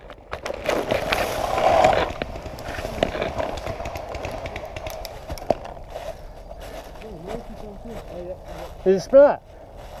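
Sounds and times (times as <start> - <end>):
running footsteps in dry leaves: 0.7 - 10.0
gear jostling and knocking: 1.8 - 5.8.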